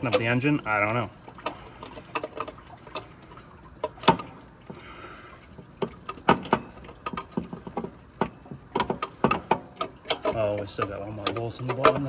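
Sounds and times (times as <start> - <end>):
metallic knocks and clicks: 3.8 - 4.4, 5.7 - 12.0.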